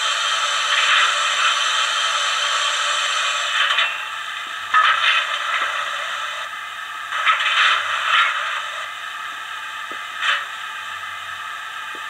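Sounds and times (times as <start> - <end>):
steam hiss from small speaker: 0.0 - 6.5.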